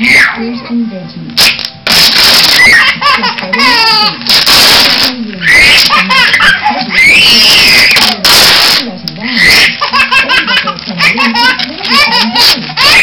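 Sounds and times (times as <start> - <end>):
sticky tape ripped off roll: 1.4 - 3.4, 4.2 - 10.0
baby laughing: 2.4 - 4.6, 5.4 - 8.2, 9.2 - 13.0.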